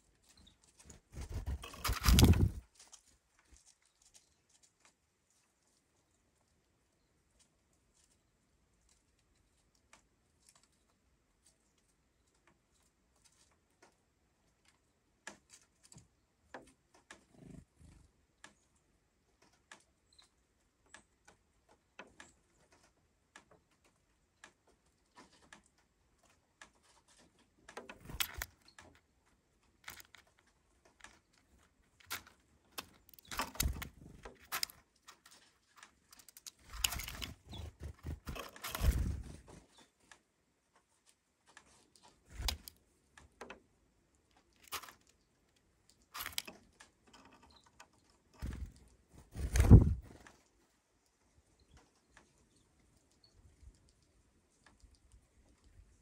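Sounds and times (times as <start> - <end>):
birds pecking seeds: 0.0 - 56.0
bird scuffling in seed bowl: 0.2 - 4.9, 28.0 - 28.9, 31.0 - 39.9, 46.2 - 46.5.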